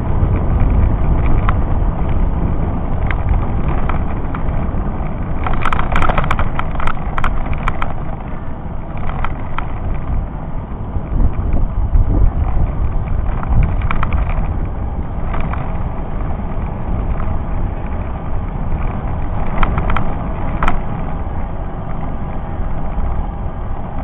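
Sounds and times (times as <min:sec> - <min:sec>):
bicycle road noise on asphalt: 0:00.0 - 0:24.0
wind rumble: 0:00.0 - 0:24.0
clicks and rattles: 0:00.3 - 0:02.2, 0:02.9 - 0:10.2, 0:12.4 - 0:18.0, 0:18.6 - 0:21.0.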